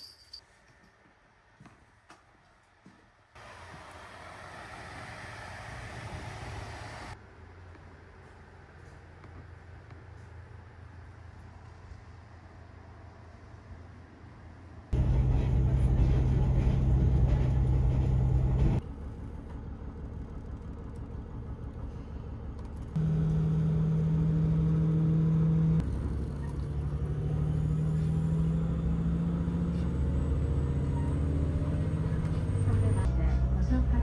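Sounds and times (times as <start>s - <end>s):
diesel railcar engine hum: 3.4s - 34.0s.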